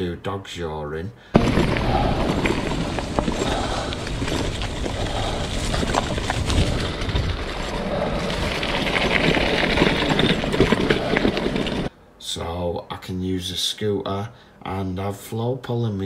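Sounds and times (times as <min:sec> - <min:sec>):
scooter rattles and knocks: 0:01.4 - 0:11.9
scooter tyres rumbling on dirt: 0:01.4 - 0:11.9
wind buffeting microphone: 0:01.4 - 0:11.9.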